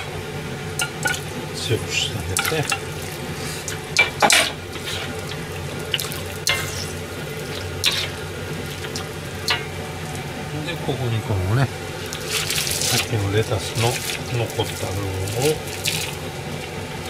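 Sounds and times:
pan sizzling: 0.0 - 17.0
metal ladle scraping wok: 2.4 - 5.4, 6.4 - 7.0, 7.7 - 9.7.

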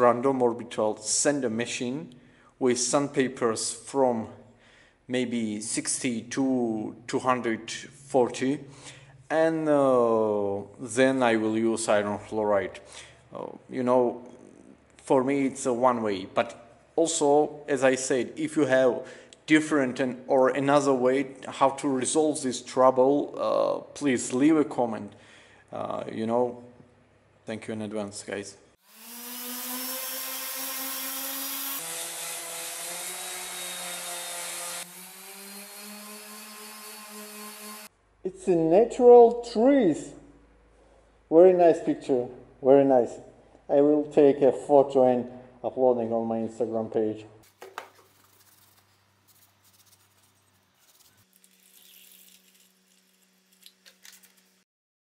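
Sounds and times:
orbital sander motor hum: 28.8 - 37.9
sandpaper rubbing on metal: 47.9 - 53.3
liquid pouring into plastic tray: 51.4 - 53.1.

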